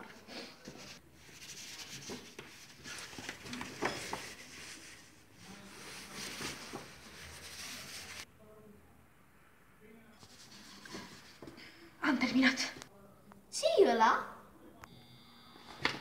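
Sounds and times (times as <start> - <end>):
paper rustling: 0.6 - 8.2.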